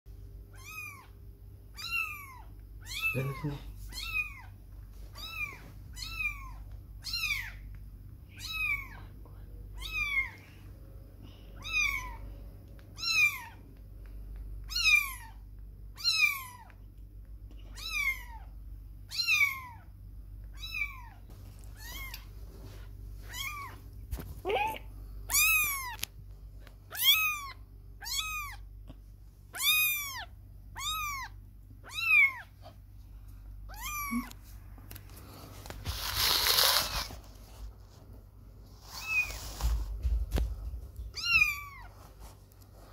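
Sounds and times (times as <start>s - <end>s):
kittens meowing: 0.5s - 4.6s, 5.2s - 7.7s, 8.3s - 9.0s, 9.8s - 10.5s, 11.6s - 12.3s, 13.0s - 13.7s, 14.6s - 15.4s, 16.0s - 16.8s, 17.7s - 18.5s, 19.1s - 19.9s, 20.5s - 21.2s, 21.8s - 22.3s, 23.3s - 23.8s, 24.4s - 26.1s, 26.9s - 28.7s, 29.5s - 32.8s, 33.7s - 34.4s, 41.0s - 41.9s.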